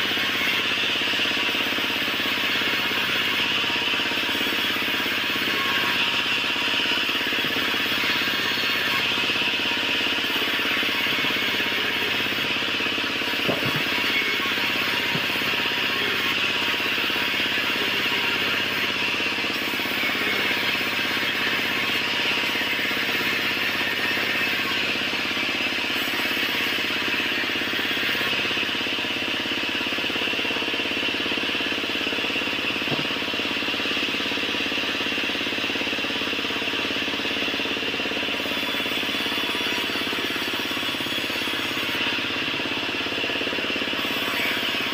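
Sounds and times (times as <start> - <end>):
band saw cutting timber: 0.0 - 44.9.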